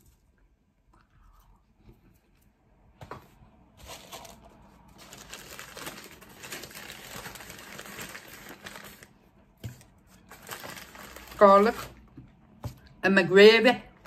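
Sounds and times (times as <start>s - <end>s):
paper crinkling and rustling: 3.8s - 12.0s.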